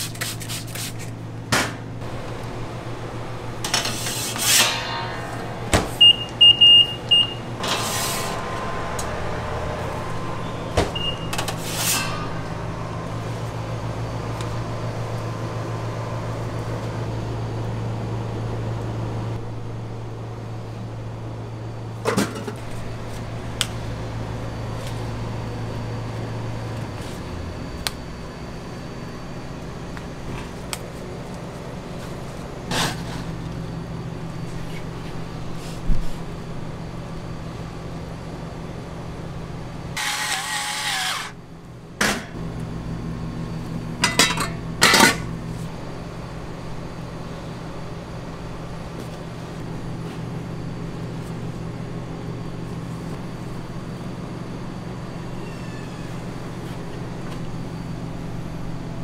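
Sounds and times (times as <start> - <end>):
low appliance hum: 0.0 - 59.0
short electronic beeps: 6.0 - 7.4, 10.4 - 11.4.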